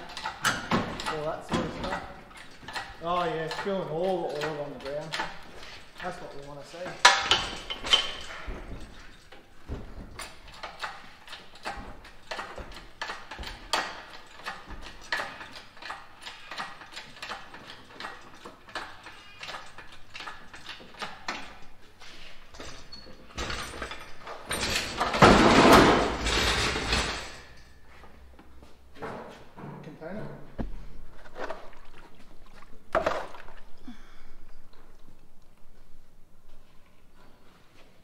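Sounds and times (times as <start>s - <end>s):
metallic clicks and knocks: 0.0s - 9.4s, 10.2s - 21.8s.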